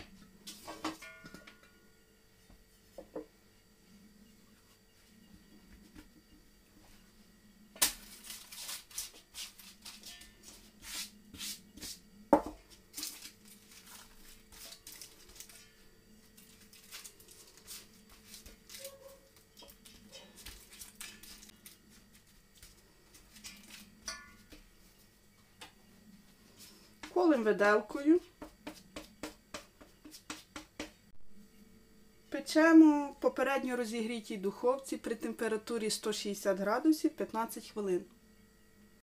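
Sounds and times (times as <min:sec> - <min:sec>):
baking paper rustling and crinkling: 0:07.8 - 0:11.9, 0:12.7 - 0:24.0.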